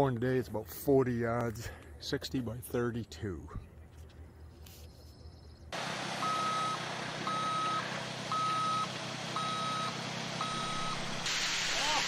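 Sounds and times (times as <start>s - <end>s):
truck backup alarm beeping: 5.2s - 11.2s
truck engine running: 5.7s - 11.3s.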